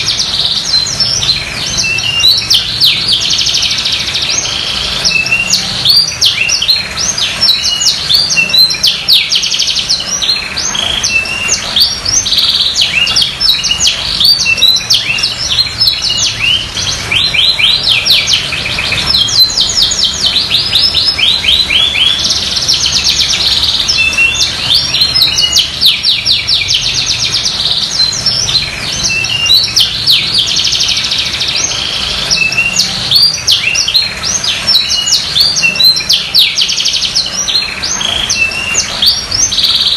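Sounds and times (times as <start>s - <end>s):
canary singing: 0.0s - 39.9s.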